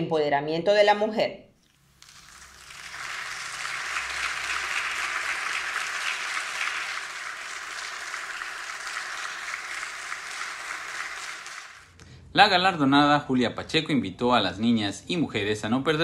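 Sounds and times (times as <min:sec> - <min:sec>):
small group clapping: 0:02.0 - 0:12.0.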